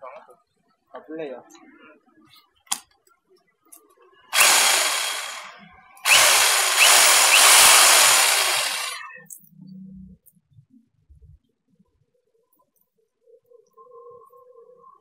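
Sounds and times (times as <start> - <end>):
rotary hammer running: 4.4 - 9.1.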